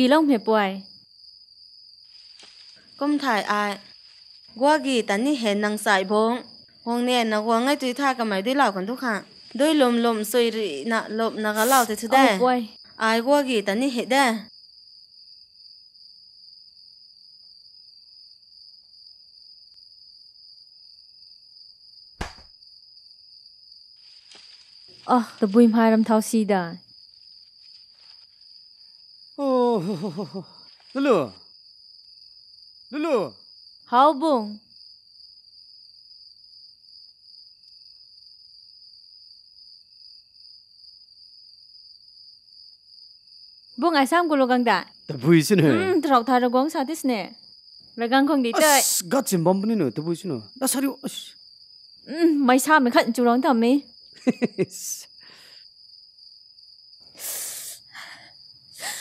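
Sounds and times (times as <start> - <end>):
crickets singing: 0.0 - 59.0
loud sharp knock: 22.2 - 22.6.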